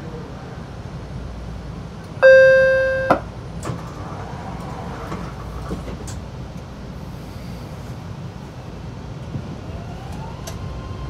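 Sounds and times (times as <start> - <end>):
train car low rumble: 0.0 - 11.0
electronic chime tone: 2.2 - 3.2.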